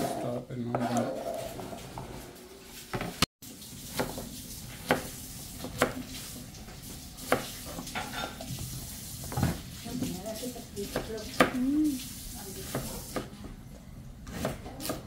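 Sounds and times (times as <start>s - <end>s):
vegetables sizzling in oil: 2.8s - 13.3s
knife chopping on plastic board: 3.9s - 6.0s, 14.2s - 15.0s.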